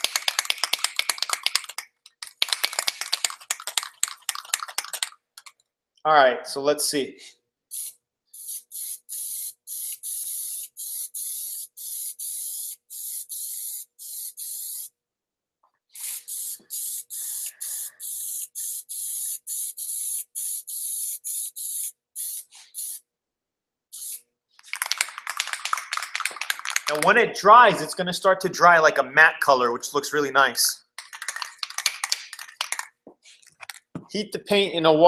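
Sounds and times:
aerosol can spraying: 0.1s - 5.5s, 7.7s - 14.9s, 16.0s - 23.0s, 24.0s - 27.2s.

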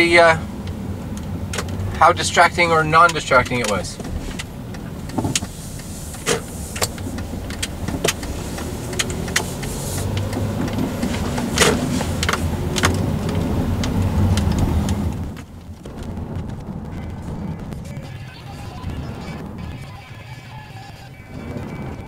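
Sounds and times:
engine and road rumble: 0.0s - 22.0s
sharp clicks and knocks: 0.6s - 2.0s, 3.0s - 16.7s.

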